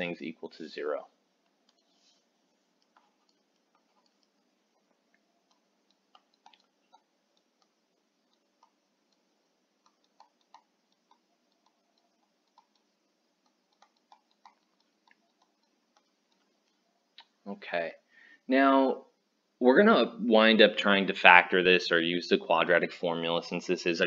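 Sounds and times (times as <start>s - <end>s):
low room hum: 0.0s - 24.0s
stylus tapping on tablet screen: 2.8s - 17.4s.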